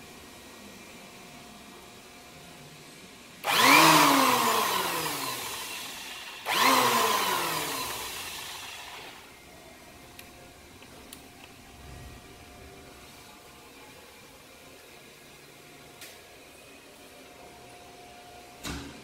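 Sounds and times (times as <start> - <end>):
electric planer motor whining: 3.4 - 9.3.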